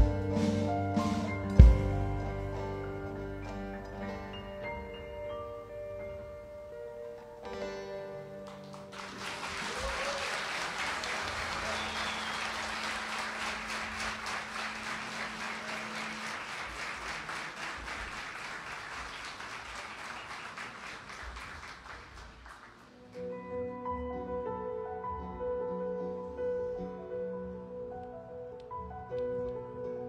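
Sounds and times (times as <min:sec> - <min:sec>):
band playing: 0:00.0 - 0:09.4
audience applauding: 0:08.4 - 0:23.2.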